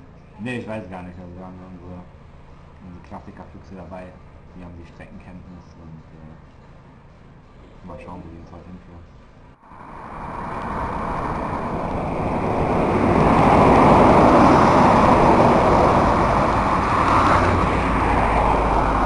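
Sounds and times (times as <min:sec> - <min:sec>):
road noise: 0:00.0 - 0:19.0
wind rushing over microphone: 0:09.6 - 0:19.0.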